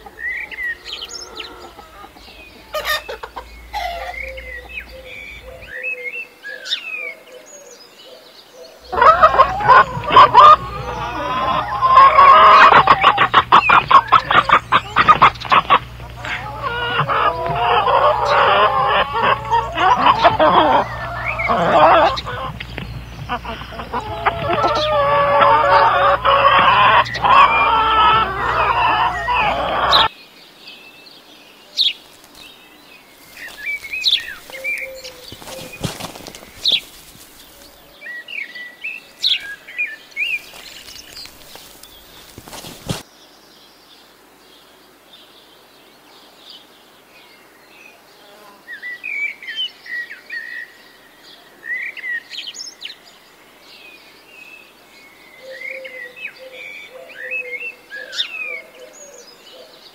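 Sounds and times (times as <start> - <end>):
chickens clucking: 0.0 - 5.9, 8.8 - 30.1, 33.2 - 38.0, 40.4 - 43.0
small birds chirping: 0.0 - 59.9.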